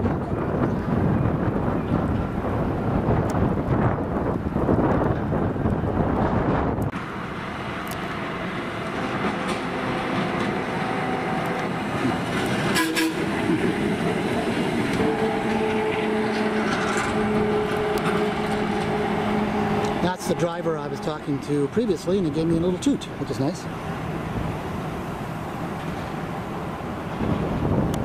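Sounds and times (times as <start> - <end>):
electric streetcar running on track: 0.0 - 28.0
rail clicks: 4.2 - 28.0
streetcar horn toot: 12.7 - 13.3, 15.0 - 21.8.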